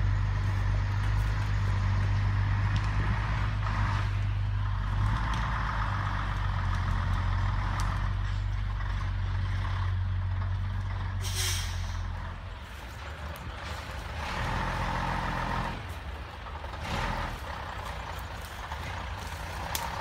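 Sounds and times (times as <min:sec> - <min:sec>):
truck engine running: 0:00.0 - 0:20.0
short hiss: 0:11.2 - 0:12.0.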